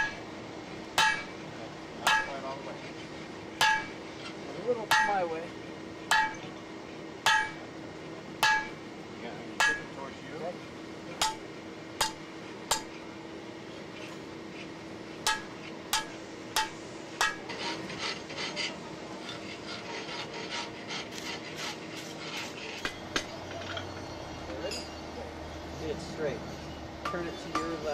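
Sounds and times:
hammer blows on hot metal: 2.0s - 2.6s, 3.6s - 4.1s, 4.8s - 5.4s, 8.4s - 8.8s, 9.6s - 10.0s, 11.2s - 11.4s, 15.2s - 17.8s
light metal clinks and scraping: 17.2s - 27.9s.

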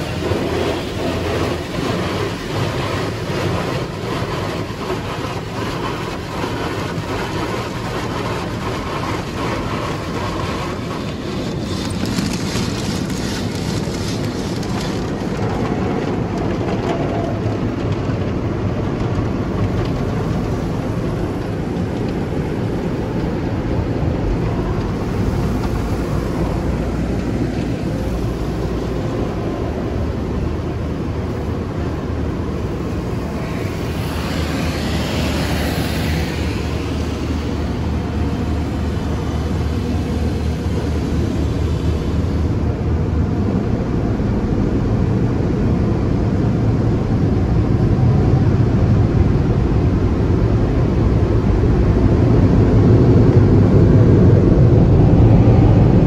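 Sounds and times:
water spray on car: 0.0s - 16.4s, 32.6s - 42.5s
car wash brushes on car: 0.0s - 43.4s
car wash machinery and blowers: 0.0s - 56.0s.

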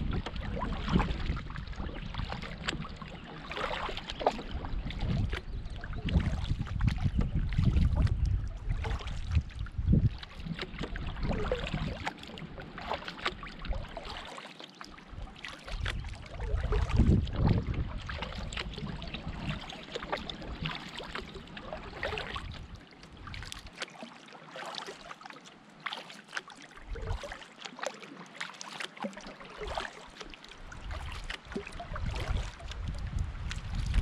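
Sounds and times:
wind buffeting microphone: 0.0s - 3.2s, 4.4s - 12.1s, 15.8s - 19.6s, 21.9s - 22.8s, 30.7s - 34.0s
paddle splashing water: 0.0s - 34.0s.

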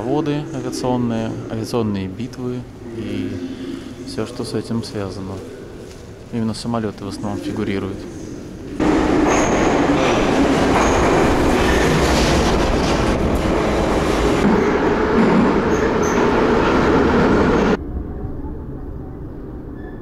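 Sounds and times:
metro train rumbling: 0.0s - 20.0s
high wheel squeals: 15.6s - 16.7s.

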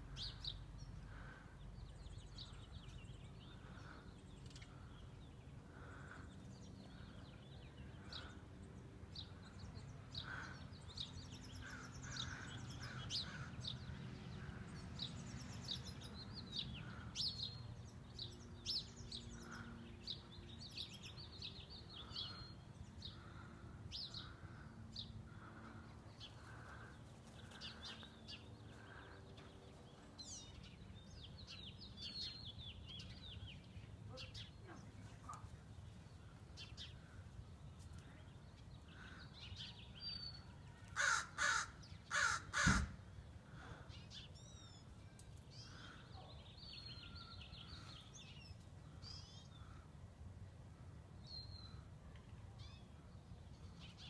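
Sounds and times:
small birds chirping: 0.0s - 49.9s.

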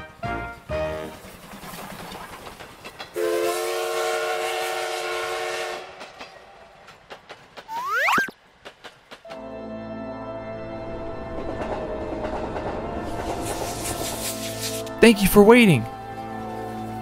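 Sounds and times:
wheels clacking over rail joints: 0.6s - 3.4s, 5.8s - 7.8s, 8.4s - 9.4s, 11.2s - 15.0s
train whistle chord: 3.2s - 6.0s
rising whistle glide: 7.7s - 8.3s.

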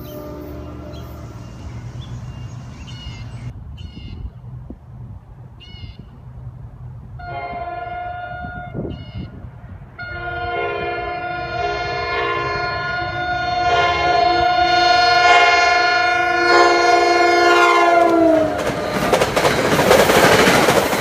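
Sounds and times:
train air horn chord blasts: 0.0s - 2.1s, 7.2s - 8.9s, 10.0s - 18.6s.

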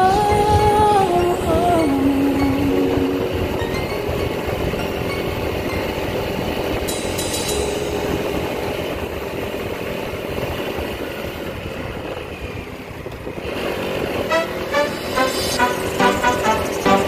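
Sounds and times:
wind and road noise: 2.6s - 16.8s
motorcycle engine: 8.2s - 14.7s.

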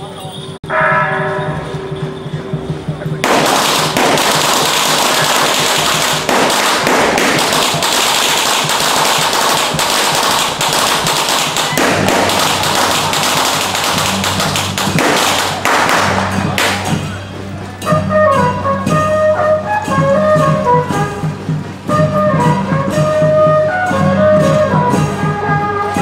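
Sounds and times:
firecrackers popping: 3.2s - 17.2s.

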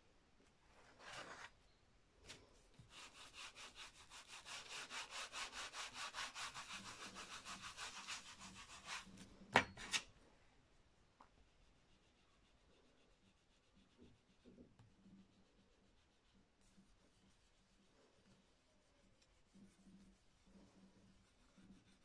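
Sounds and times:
baren rubbing on paper: 2.8s - 9.2s, 11.5s - 22.0s.

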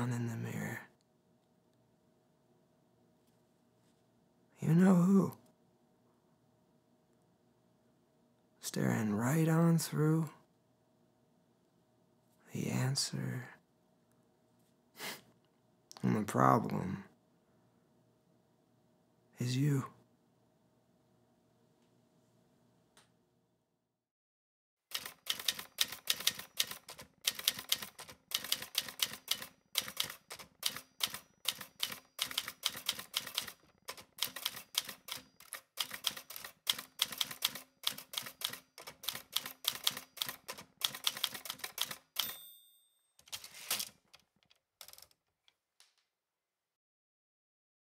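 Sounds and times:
typewriter keys clacking: 24.9s - 42.4s, 43.2s - 45.4s
typewriter bell ding: 27.5s - 40.5s, 41.1s - 43.5s.

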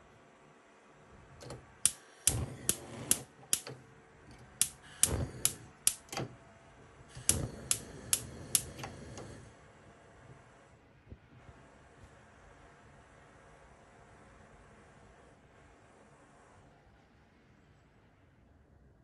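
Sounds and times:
gas burner lighting: 1.3s - 6.4s, 7.0s - 9.5s
stove spark igniter clicking: 1.4s - 6.3s, 7.1s - 9.4s
gas rushing: 1.8s - 3.7s, 4.5s - 6.2s, 7.1s - 9.4s.

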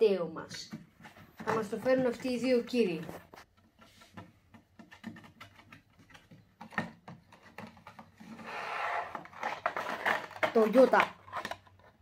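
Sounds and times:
plastic packaging clicks and taps: 3.5s - 8.2s.

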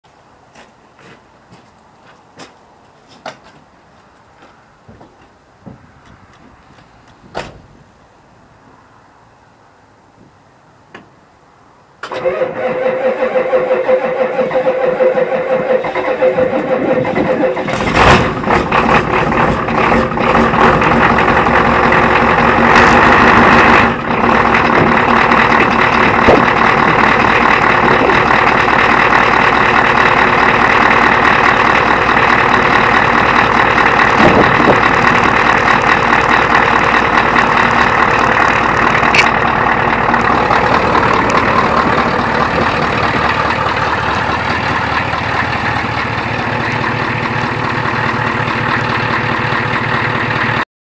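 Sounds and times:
diesel engine idling: 12.0s - 50.6s.

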